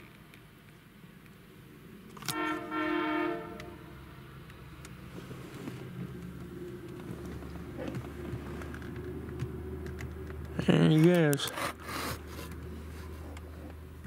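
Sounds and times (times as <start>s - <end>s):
low engine rumble: 0.0s - 14.0s
truck horn blast: 2.3s - 4.2s.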